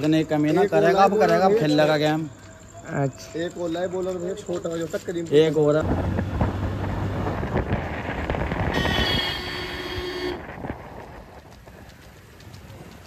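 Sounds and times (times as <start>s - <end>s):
engine and road noise: 4.5s - 13.0s
vehicle horn: 8.7s - 10.6s.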